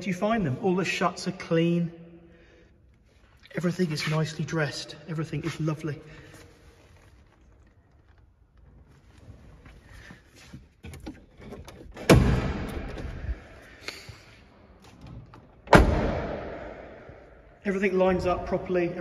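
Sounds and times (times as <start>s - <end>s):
car door shutting with echo: 12.0s - 13.7s, 15.6s - 17.1s.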